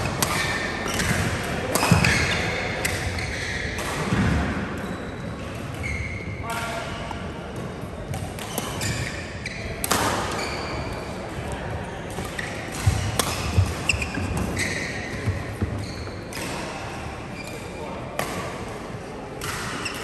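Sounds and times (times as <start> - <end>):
shoes squeaking on court floor: 0.0 - 7.2, 7.9 - 11.1, 11.8 - 16.6, 17.3 - 17.8
racket striking shuttlecock: 0.1 - 3.2, 12.1 - 14.6.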